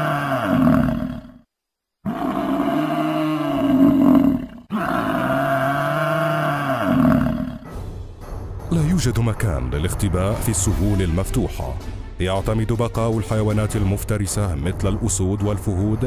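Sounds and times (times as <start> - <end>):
growling animal roar: 0.0 - 1.4, 2.0 - 7.7.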